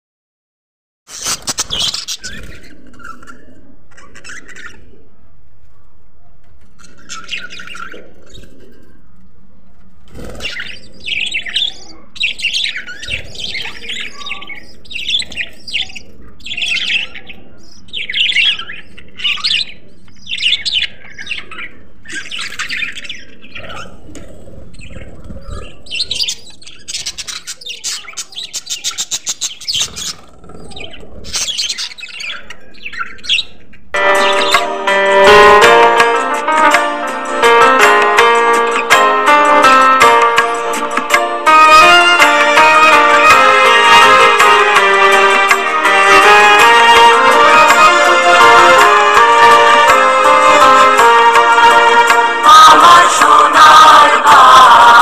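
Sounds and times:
budgerigars chirping and chattering: 0:01.1 - 0:05.0, 0:06.6 - 0:09.0, 0:10.1 - 0:36.8.

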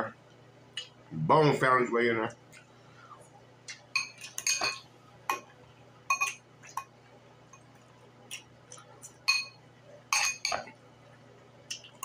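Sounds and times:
fork clinking against glass bowl: 0:04.0 - 0:05.4, 0:06.1 - 0:06.9, 0:09.2 - 0:10.7.

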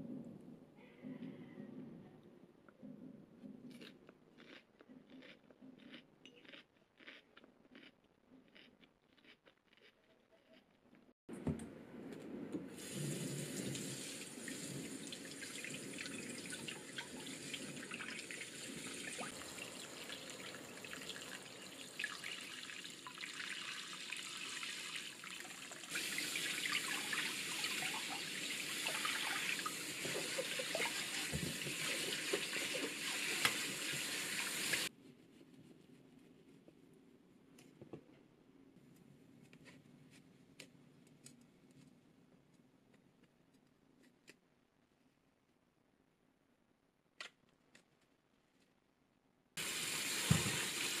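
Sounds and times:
broccoli rinsed by hand: 0:12.8 - 0:34.9, 0:49.6 - 0:51.0.

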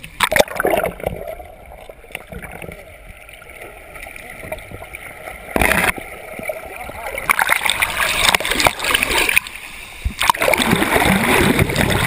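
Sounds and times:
stream water gurgling and lapping: 0:00.0 - 0:12.0
loud water splash: 0:10.2 - 0:12.0.

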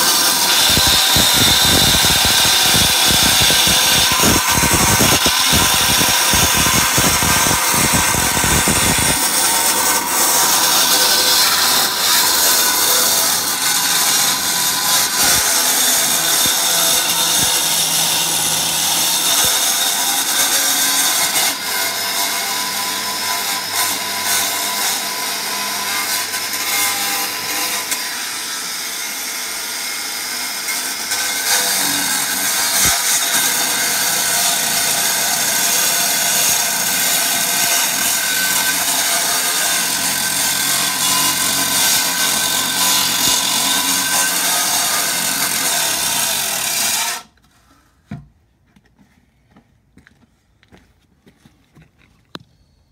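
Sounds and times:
angle grinder cutting concrete: 0:00.0 - 0:47.3.

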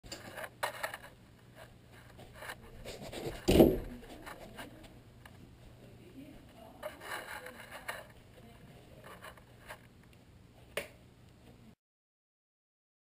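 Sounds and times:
rubs and scrapes on camera housing: 0:00.2 - 0:04.9, 0:06.8 - 0:08.2, 0:09.0 - 0:09.9
loud thump: 0:03.4 - 0:04.0.

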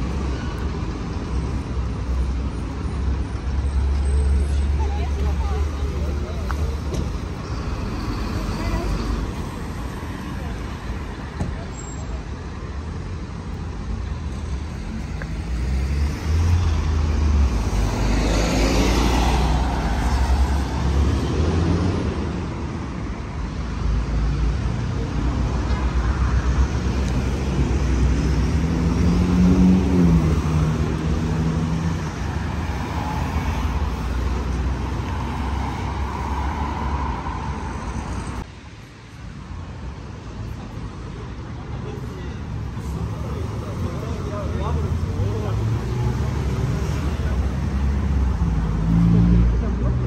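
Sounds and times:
cars driving past: 0:14.4 - 0:38.8, 0:41.9 - 0:50.0.

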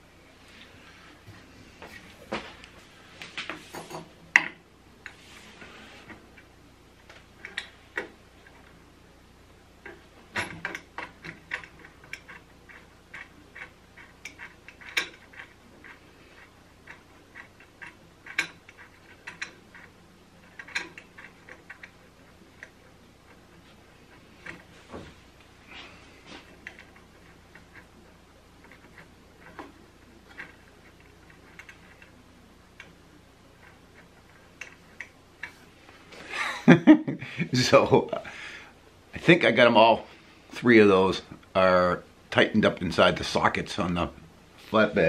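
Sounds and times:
sharp clicks of parts: 0:09.8 - 0:22.0.

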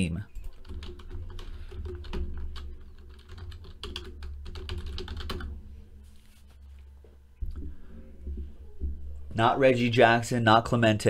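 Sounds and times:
keyboard typing: 0:00.3 - 0:05.6.

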